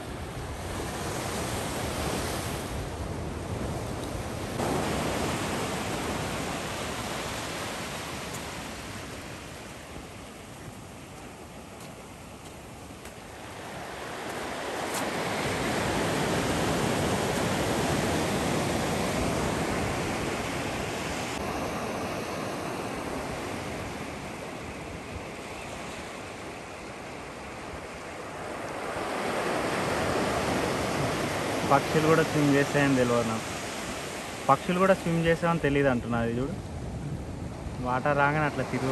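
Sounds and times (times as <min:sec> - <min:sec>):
ocean waves washing on shore: 0:00.0 - 0:38.9
wind on microphone: 0:36.5 - 0:37.9.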